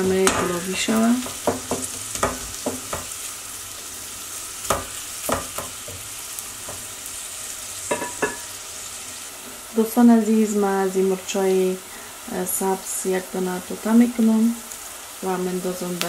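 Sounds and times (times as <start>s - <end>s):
onions sizzling in oil: 0.0s - 16.0s
wooden spoon knocking on pot: 1.2s - 3.2s, 4.7s - 6.0s, 7.9s - 8.5s.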